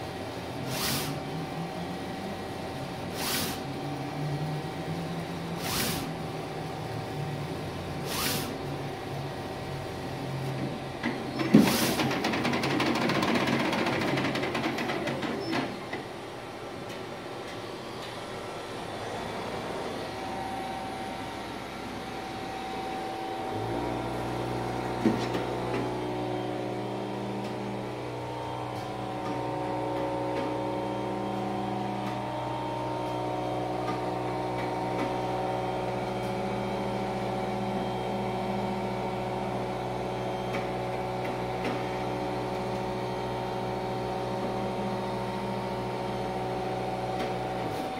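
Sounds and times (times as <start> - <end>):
printer mechanism running: 10.4 - 18.2, 21.2 - 43.0
steady machine hum: 15.8 - 47.9.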